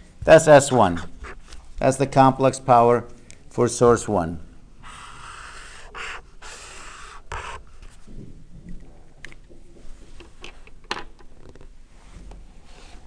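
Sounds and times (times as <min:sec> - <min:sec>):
marker scratching on paper: 0:00.7 - 0:01.7, 0:05.0 - 0:08.0.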